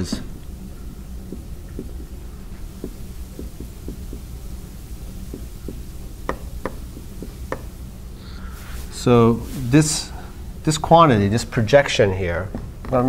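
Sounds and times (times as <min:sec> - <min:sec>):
low room hum: 0:00.0 - 0:13.0
marker tapping on whiteboard: 0:01.3 - 0:02.2, 0:02.8 - 0:04.3, 0:05.3 - 0:07.7.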